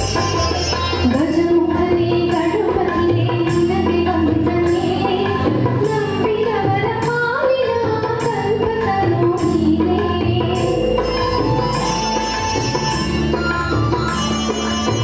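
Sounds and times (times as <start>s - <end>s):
steady percussion beat: 0.0s - 7.2s, 8.0s - 15.0s
recorded backing track: 0.0s - 15.0s
woman singing devotional song: 1.0s - 11.5s.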